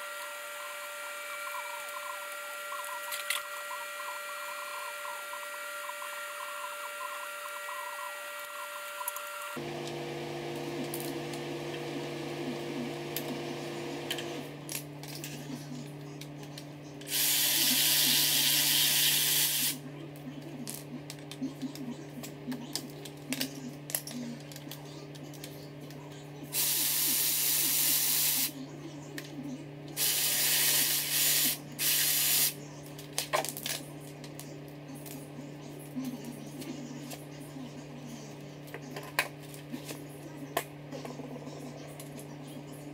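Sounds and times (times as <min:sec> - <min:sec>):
power tool running: 0:00.0 - 0:14.7, 0:17.1 - 0:19.8, 0:30.0 - 0:32.6.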